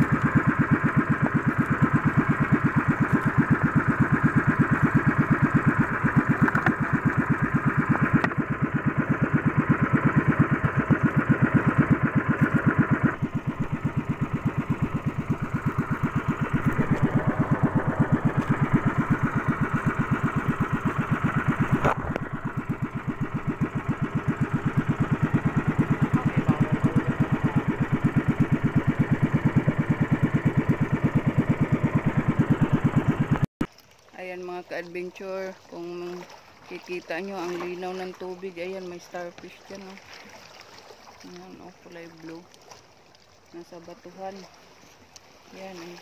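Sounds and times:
boat engine putt-putt: 0.0s - 46.0s.

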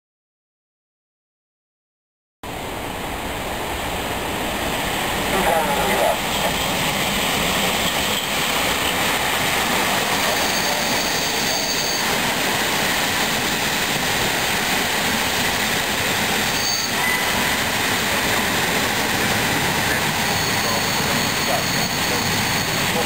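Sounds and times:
train wheels rumbling on rail: 2.5s - 23.0s
faint high wheel squeals: 10.0s - 12.2s, 16.5s - 17.6s, 19.8s - 23.0s.

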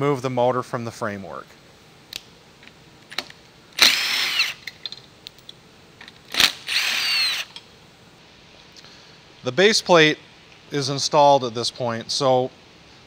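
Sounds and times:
cordless drill whining: 3.8s - 4.6s, 6.3s - 7.5s.

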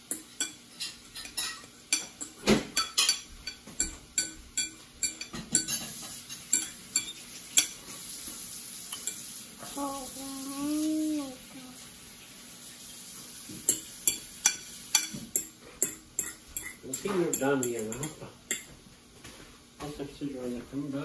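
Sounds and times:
fork scraping a bowl: 5.1s - 7.8s, 15.8s - 18.6s
person humming: 9.7s - 11.8s.

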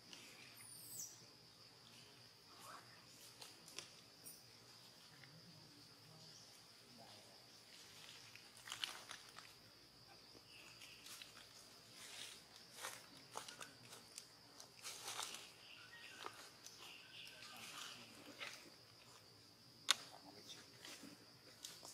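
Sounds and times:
crackly rustles: 7.6s - 9.8s, 10.6s - 21.9s.

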